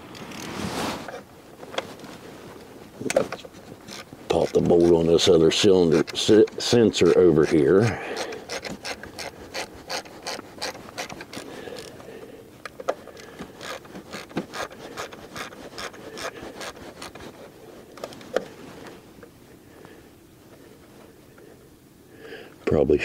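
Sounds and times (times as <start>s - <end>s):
hand ratchet clicking: 3.9s - 12.0s, 12.7s - 17.3s.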